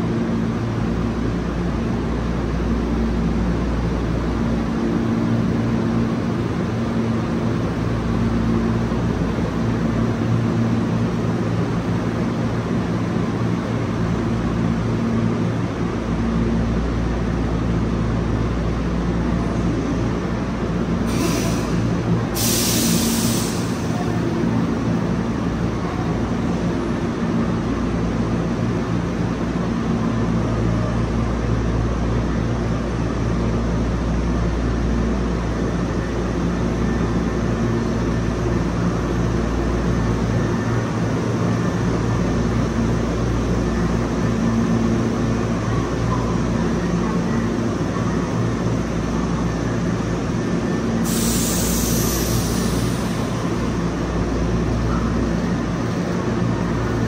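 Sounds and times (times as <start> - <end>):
electric train rumbling: 0.0 - 57.0
high hiss: 51.0 - 53.6.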